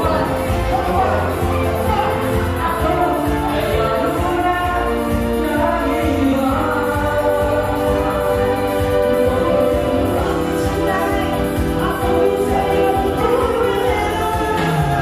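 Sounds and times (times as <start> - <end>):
dance music over loudspeaker: 0.0 - 15.0.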